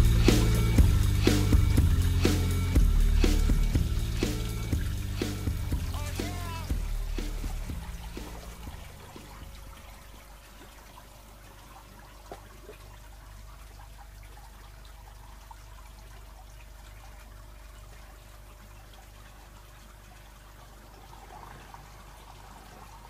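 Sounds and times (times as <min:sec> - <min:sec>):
background music: 0:00.0 - 0:09.6
faint steady hum: 0:00.0 - 0:23.0
water trickling and splashing: 0:00.0 - 0:23.0.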